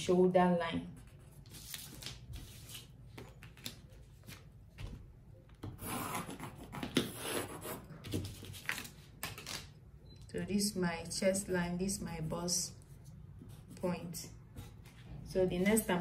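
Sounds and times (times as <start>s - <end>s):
pencil scratching on paper: 5.8s - 7.9s.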